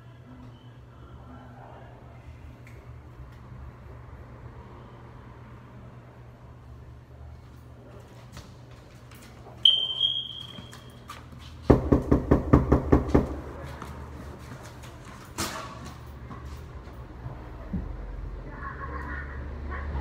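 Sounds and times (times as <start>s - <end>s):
fist pounding on wooden door: 11.7s - 13.4s.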